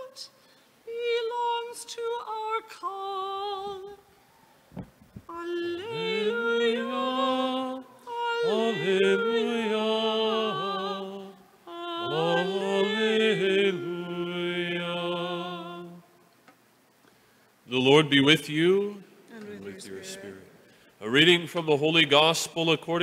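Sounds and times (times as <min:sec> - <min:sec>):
person singing solo: 0:08.1 - 0:11.1, 0:11.7 - 0:16.0.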